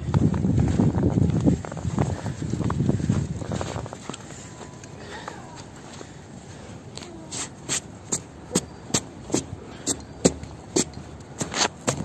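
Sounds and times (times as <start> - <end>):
footsteps in snow: 0.0 - 6.2.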